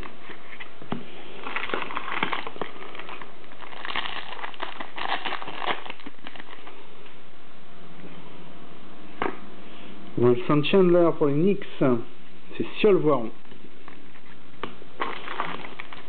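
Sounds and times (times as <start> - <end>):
card wrapping crinkling and rustling: 0.0 - 6.8, 13.5 - 16.0.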